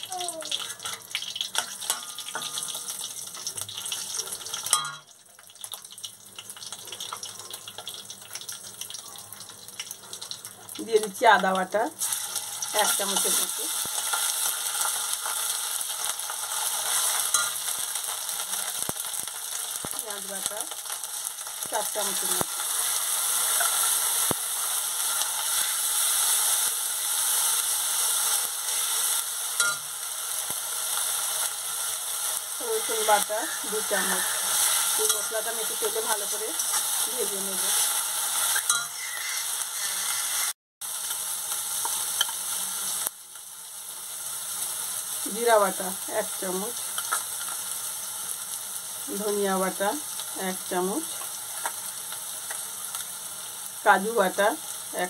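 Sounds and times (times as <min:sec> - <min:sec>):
spices sizzling in hot oil: 0:00.0 - 0:55.0
metal spatula clinking on pan: 0:00.8 - 0:02.8, 0:04.6 - 0:05.1, 0:17.2 - 0:17.8, 0:29.6 - 0:29.9, 0:38.6 - 0:39.1.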